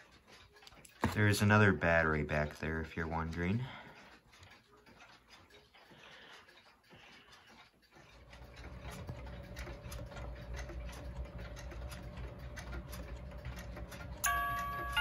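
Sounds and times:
clock ticking and clicking: 0:00.0 - 0:15.0
electronic clock chime: 0:14.0 - 0:15.0.

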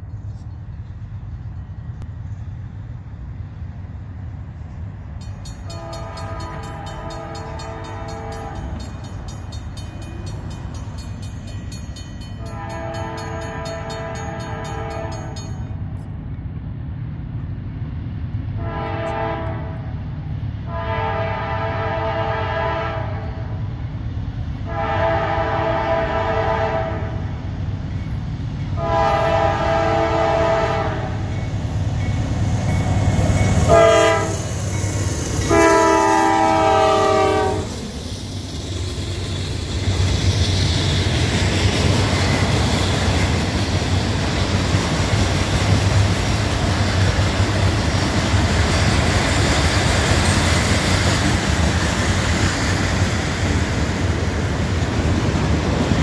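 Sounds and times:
locomotive rumble: 0:00.0 - 0:56.0
locomotive horn blasts: 0:05.6 - 0:08.8, 0:12.4 - 0:15.6, 0:18.6 - 0:19.8, 0:20.7 - 0:23.5, 0:24.6 - 0:27.2, 0:28.8 - 0:31.3, 0:33.6 - 0:34.5, 0:35.4 - 0:37.7.

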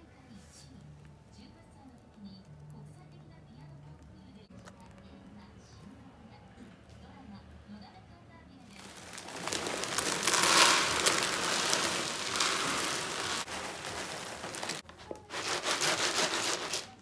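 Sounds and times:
litter pellets pouring into tray: 0:08.7 - 0:17.0
pellets rattling in shaken tray: 0:08.7 - 0:17.0.

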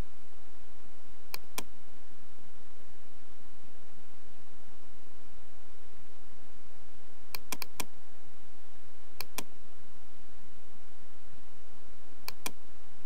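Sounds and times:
mouse button clicks: 0:07.3 - 0:07.9, 0:09.2 - 0:09.5, 0:12.2 - 0:12.6.

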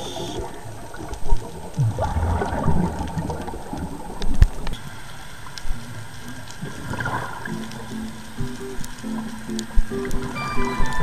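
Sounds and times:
underwater regulator bubbling: 0:00.0 - 0:04.7.

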